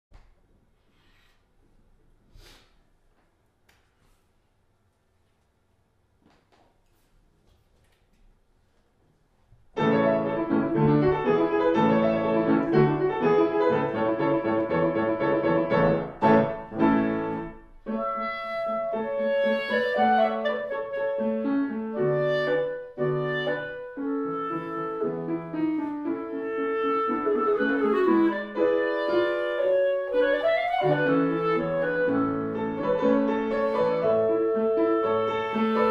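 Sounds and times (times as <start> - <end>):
piano playing: 9.7 - 35.9
clarinet long held notes: 17.9 - 32.8, 33.5 - 35.9.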